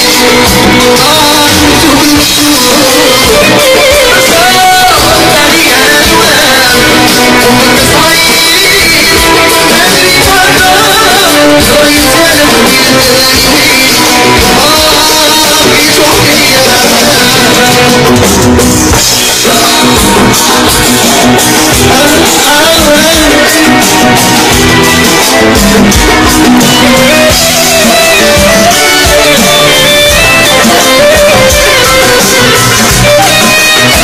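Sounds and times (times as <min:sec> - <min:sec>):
drum kit beat: 0:00.0 - 0:34.0
wavering lead melody: 0:00.0 - 0:34.0.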